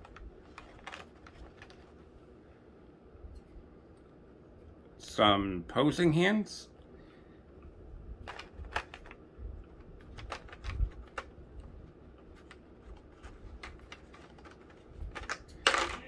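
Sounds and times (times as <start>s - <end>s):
plastic toy parts clicking: 8.2s - 9.2s, 10.0s - 11.4s, 13.6s - 16.0s.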